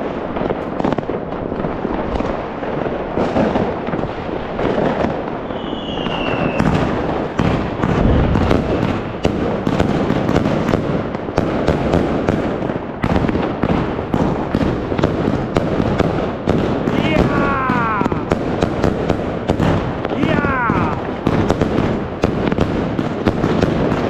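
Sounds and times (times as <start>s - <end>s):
fireworks bangs and crackling: 0.0s - 24.0s
falling firework whistle: 5.4s - 7.0s.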